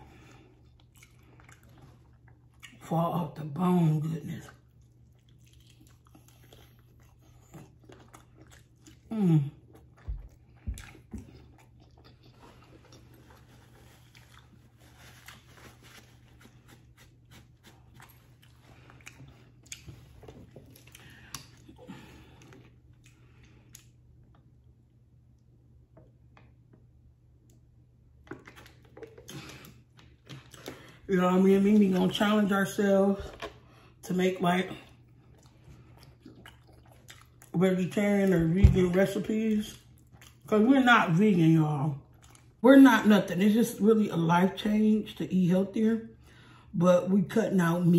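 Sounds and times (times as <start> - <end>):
chewing and smacking: 0.0 - 2.9, 4.2 - 24.8, 27.4 - 32.5, 33.2 - 40.7, 42.0 - 42.6.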